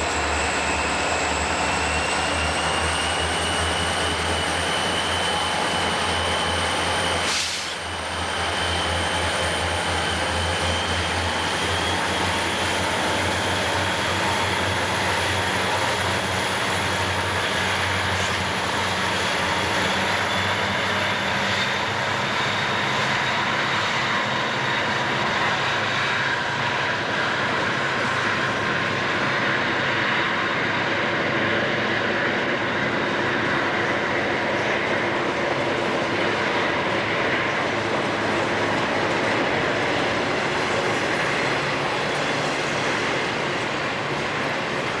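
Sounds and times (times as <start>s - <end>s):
diesel locomotive engines droning: 0.0s - 45.0s
freight cars rolling on rails: 31.7s - 45.0s.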